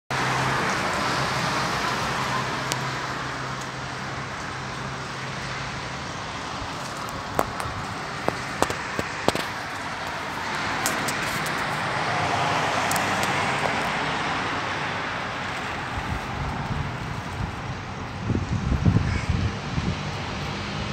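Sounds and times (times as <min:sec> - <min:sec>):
road traffic: 0:00.1 - 0:20.9
wind rushing: 0:15.8 - 0:20.9.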